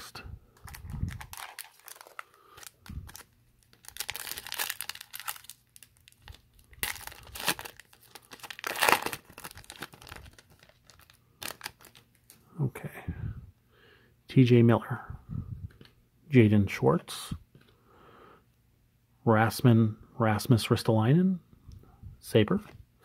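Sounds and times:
foil wrapper tearing and crinkling: 0.6s - 12.3s.

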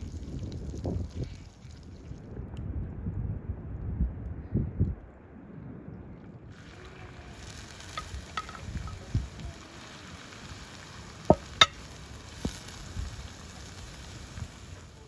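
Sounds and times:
onions sizzling in oil: 6.6s - 15.0s.

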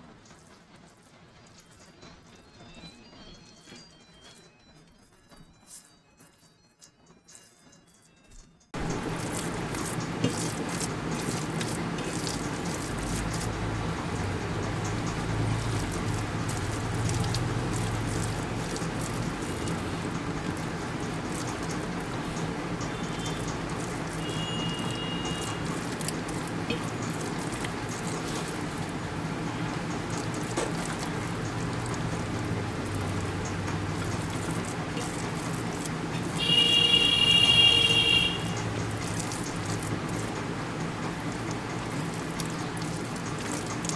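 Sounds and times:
water dripping: 8.7s - 43.9s
steady rain: 8.8s - 43.9s.

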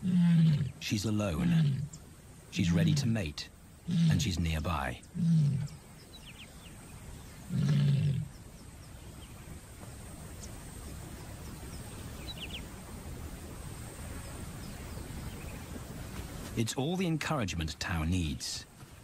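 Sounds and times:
lioness calling: 0.0s - 5.8s, 7.5s - 8.3s.

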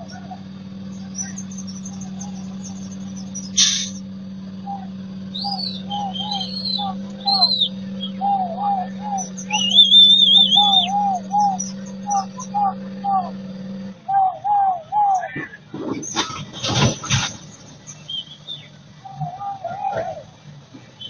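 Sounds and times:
birds chirping and calling: 0.0s - 21.0s
steady low hum: 0.0s - 21.0s
sharp click: 3.6s - 4.0s.

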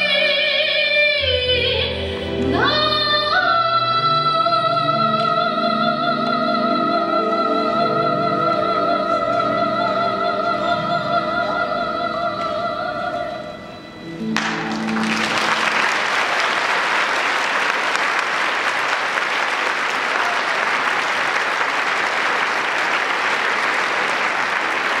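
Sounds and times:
audience applauding: 14.4s - 25.0s.

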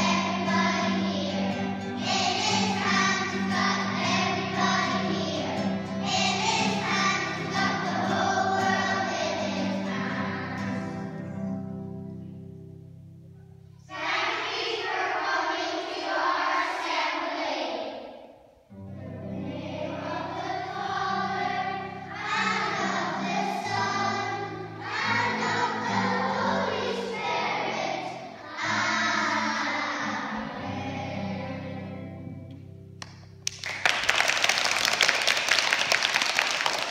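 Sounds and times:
children singing a religious song: 0.0s - 11.4s, 13.8s - 18.3s, 19.0s - 32.2s
people clapping: 33.0s - 36.9s.

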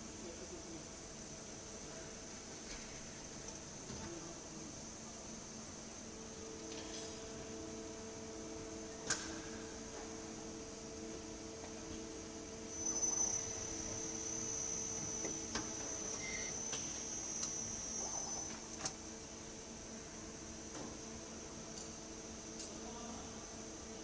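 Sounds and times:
lathe running with whine: 9.8s - 20.3s.

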